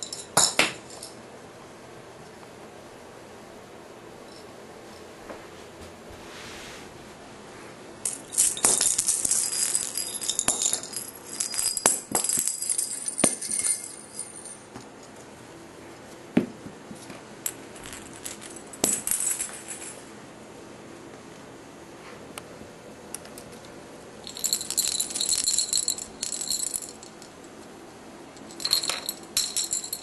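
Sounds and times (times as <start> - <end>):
cat toy bell jingling: 8.1 - 14.8, 24.2 - 27.3, 28.4 - 30.0.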